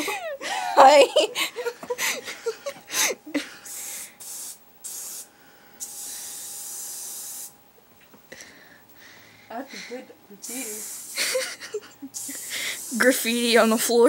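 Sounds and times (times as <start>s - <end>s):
aerosol can spraying: 3.7s - 7.6s, 10.4s - 14.0s.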